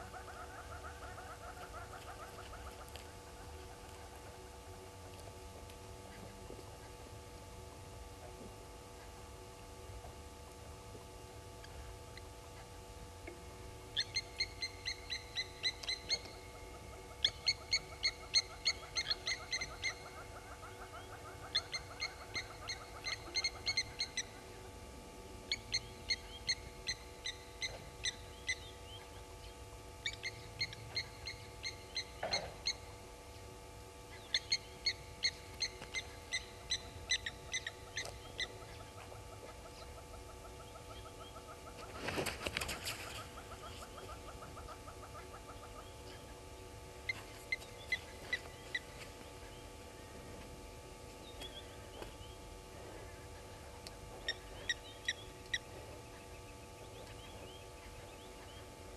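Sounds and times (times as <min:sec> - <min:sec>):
lapwing metallic alarm calls: 0:13.9 - 0:24.6, 0:25.5 - 0:29.2, 0:30.0 - 0:33.0, 0:34.1 - 0:41.8, 0:47.1 - 0:50.1, 0:51.3 - 0:58.6.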